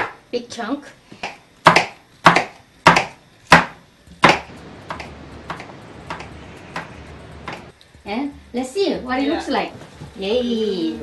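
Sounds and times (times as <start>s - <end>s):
knife chopping on wooden board: 1.2s - 7.6s.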